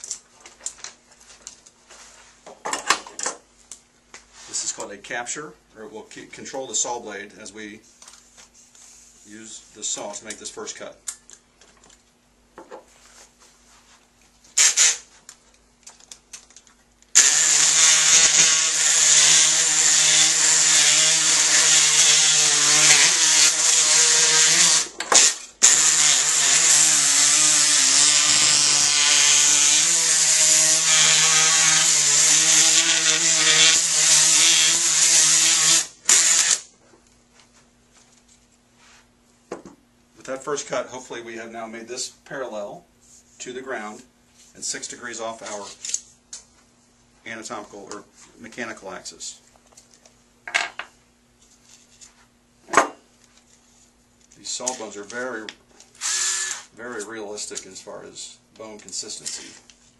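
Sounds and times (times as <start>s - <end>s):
oscillating bone saw cutting: 25.6s - 36.6s.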